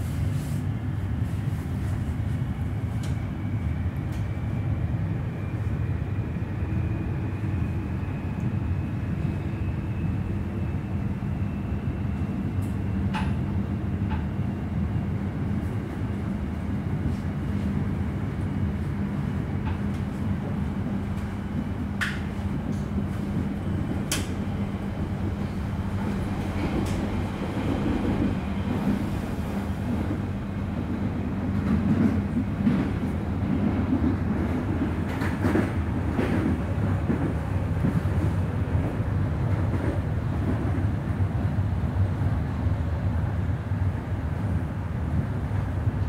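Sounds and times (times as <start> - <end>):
train wheels rumbling on track: 0.0 - 46.0.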